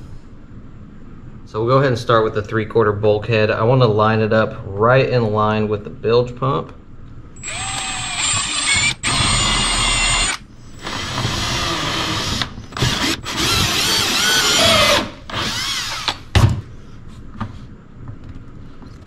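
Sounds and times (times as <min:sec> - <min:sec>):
cordless drill boring plastic: 0:07.4 - 0:16.2.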